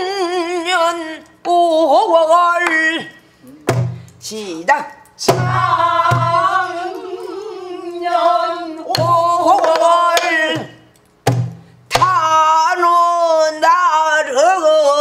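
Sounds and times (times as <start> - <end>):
barrel drum strikes: 3.7 - 4.1, 5.3 - 6.6, 8.9 - 12.2
woman singing with vibrato: 5.2 - 10.8.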